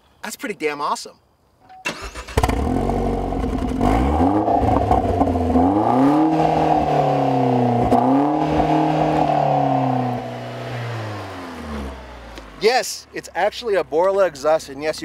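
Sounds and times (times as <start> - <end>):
car engine revving: 2.0 - 12.6.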